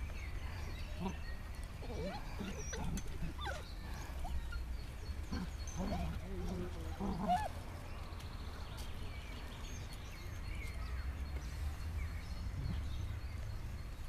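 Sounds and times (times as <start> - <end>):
dogs growling in play: 1.0 - 7.6.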